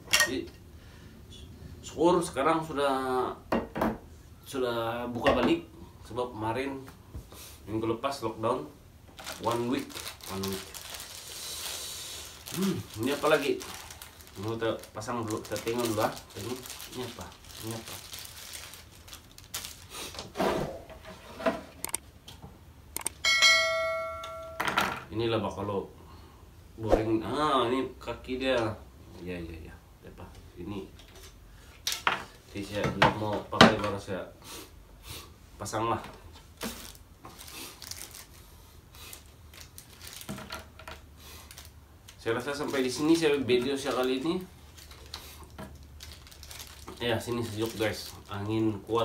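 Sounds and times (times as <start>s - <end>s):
chime: 23.2s - 24.7s.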